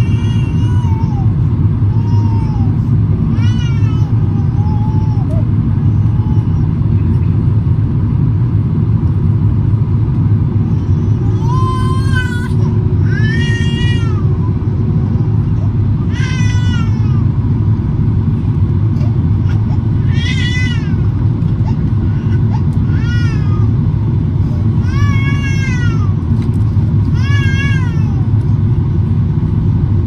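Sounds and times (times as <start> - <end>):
infant crying: 0.0 - 6.6, 10.7 - 14.6, 19.0 - 23.8, 27.2 - 28.3
airliner cabin engine rumble: 0.0 - 30.0.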